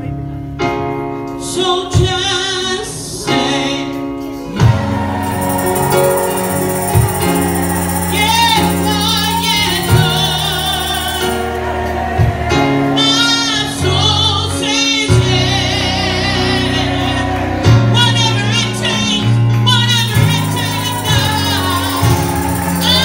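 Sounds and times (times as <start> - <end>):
woman singing gospel song: 6.5 - 23.0.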